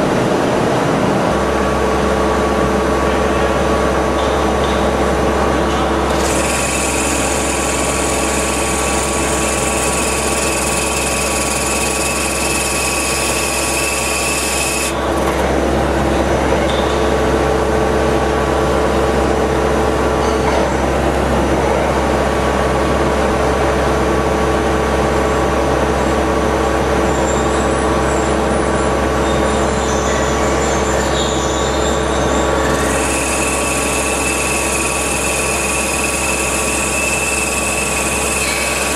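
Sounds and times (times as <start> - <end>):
high machine whine: 0.0 - 20.2, 20.9 - 38.9
machine drone: 0.0 - 20.2, 31.7 - 38.9.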